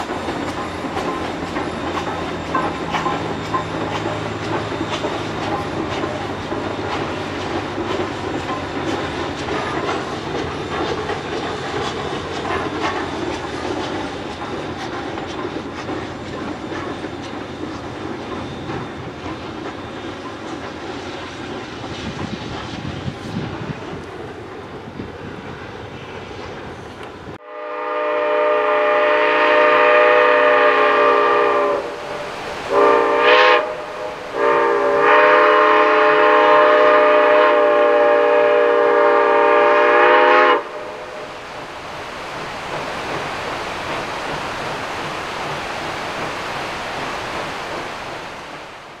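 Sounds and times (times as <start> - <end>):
steam locomotive whistle: 27.4 - 41.4
steady rushing noise: 30.8 - 35.6, 40.6 - 49.0.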